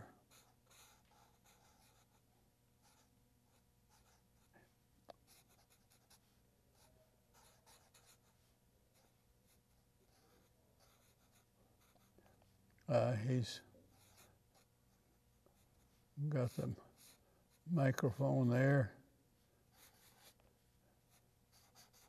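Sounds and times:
felt-tip marker scratching: 0:21.1 - 0:22.0.

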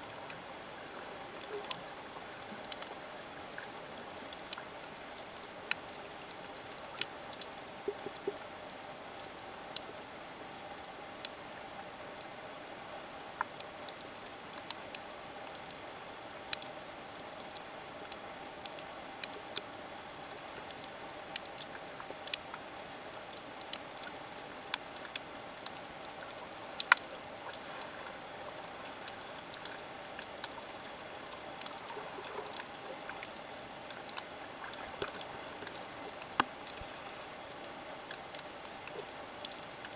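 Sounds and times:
faint hum: 0:00.0 - 0:39.9
sharp clicks and crackles: 0:20.7 - 0:39.9.

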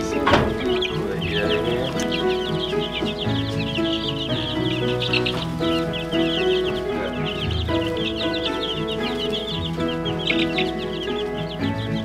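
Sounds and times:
background music with held notes: 0:00.0 - 0:12.0
chicks peeping: 0:00.0 - 0:12.0.

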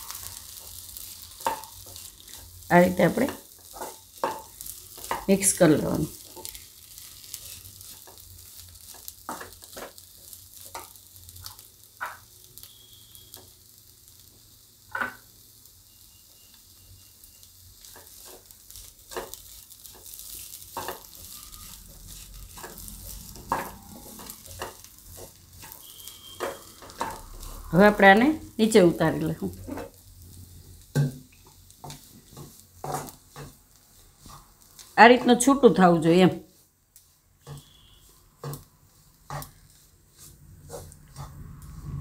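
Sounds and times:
spatula scraping a pan: 0:00.0 - 0:13.6, 0:16.4 - 0:28.0, 0:29.5 - 0:42.0
faint sizzle from pan: 0:00.0 - 0:42.0.

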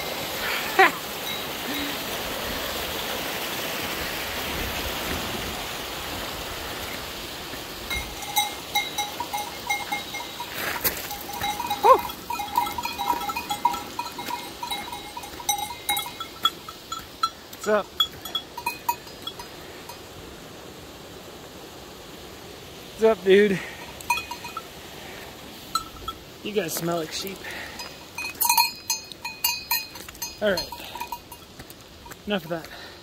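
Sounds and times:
sheep bell clanking: 0:00.0 - 0:02.0, 0:07.9 - 0:20.1, 0:23.6 - 0:24.8, 0:25.6 - 0:32.8
mountain stream rushing: 0:00.0 - 0:33.0.

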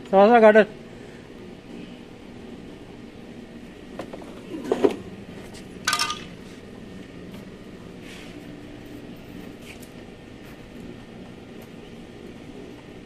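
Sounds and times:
metal clinks and knocks: 0:05.9 - 0:06.3.

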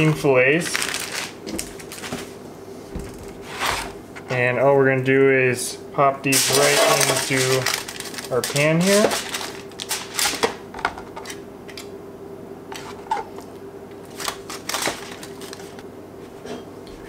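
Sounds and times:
aluminium foil crinkling: 0:00.6 - 0:02.3, 0:06.3 - 0:10.6, 0:14.0 - 0:15.8.

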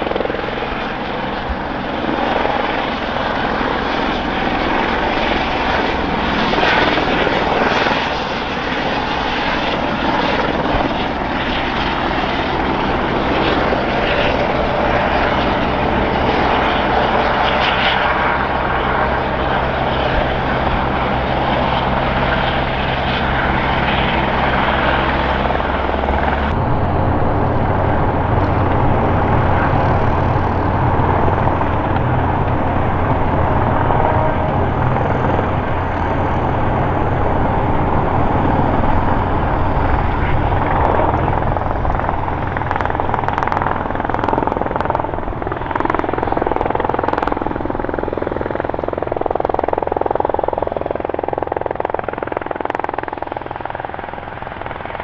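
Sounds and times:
helicopter engine rush: 0:00.0 - 0:55.0
helicopter rotor beat: 0:00.0 - 0:55.0.

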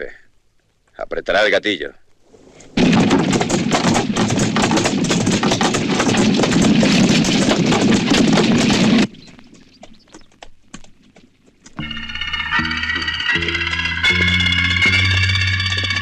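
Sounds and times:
horse hooves clattering: 0:02.4 - 0:16.0
wagon rattling on dirt track: 0:02.8 - 0:11.9.

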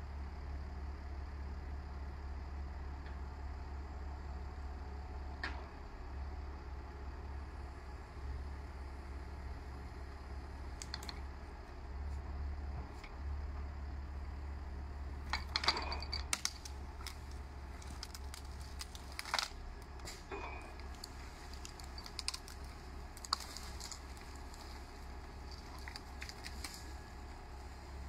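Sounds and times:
tractor engine droning: 0:03.0 - 0:28.0
branches cracking and snapping: 0:10.6 - 0:11.3, 0:15.2 - 0:28.0.

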